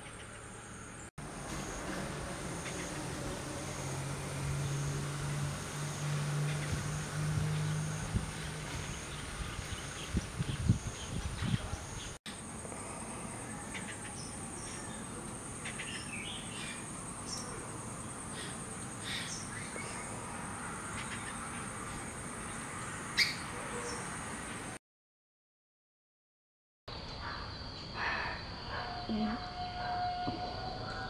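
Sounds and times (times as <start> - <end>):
bird chirps and calls: 28.9 - 30.5.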